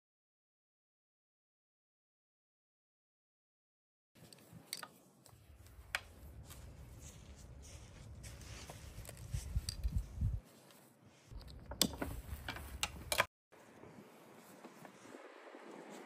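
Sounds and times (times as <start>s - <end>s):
webbing rustling through adjusters: 4.2s - 13.3s.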